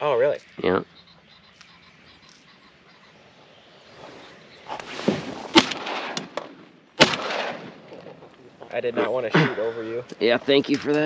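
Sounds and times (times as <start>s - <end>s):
reeds rustling: 0.0s - 8.8s
shotgun shots echoing: 5.5s - 8.2s.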